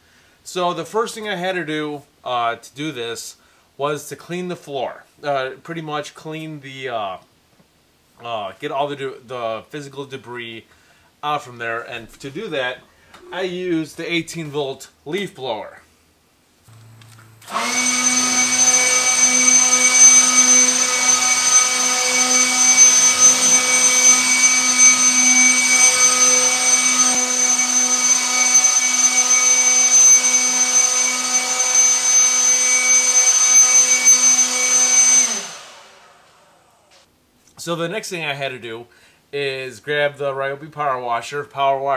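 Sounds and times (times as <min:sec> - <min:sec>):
leaf blower running: 0:16.7 - 0:37.0.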